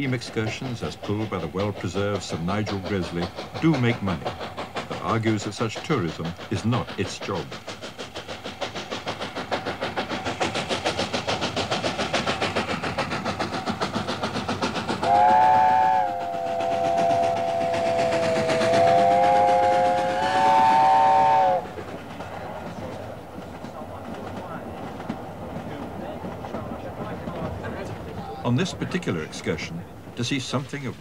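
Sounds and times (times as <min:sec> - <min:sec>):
steam locomotive exhaust beats: 0:00.0 - 0:31.0
steam locomotive chime whistle: 0:15.1 - 0:21.6.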